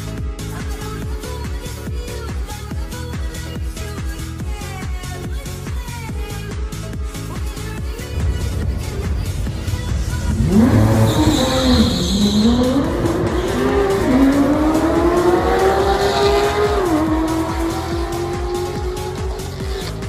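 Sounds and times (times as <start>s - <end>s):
drag car engines accelerating: 8.0s - 20.0s
tire squeal: 10.3s - 20.0s.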